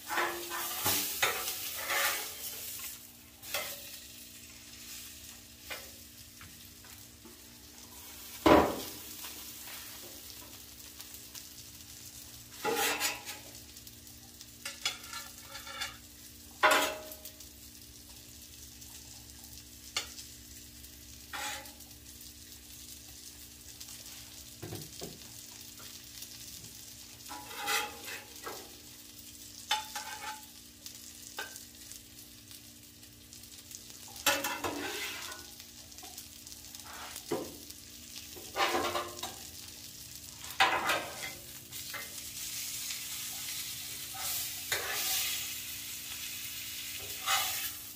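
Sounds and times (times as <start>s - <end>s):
metal spatula scraping griddle: 0.0s - 4.0s, 12.5s - 13.5s, 14.6s - 17.1s, 21.3s - 21.8s, 27.3s - 28.6s, 29.7s - 30.5s, 34.2s - 35.5s, 36.7s - 37.4s, 38.4s - 39.4s, 40.4s - 47.9s
steaks sizzling on a griddle: 0.0s - 47.9s.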